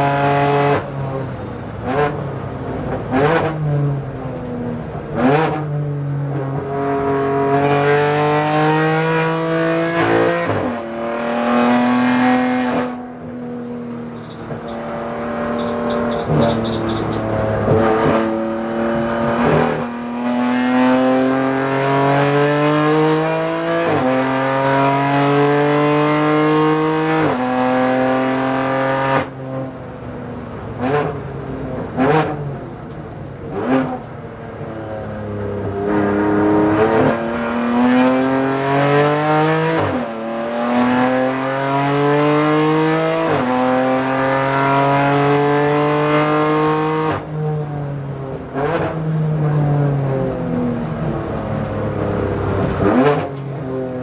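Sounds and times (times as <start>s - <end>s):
race car engine revving: 5.1s - 29.3s, 35.6s - 47.3s, 48.5s - 53.6s.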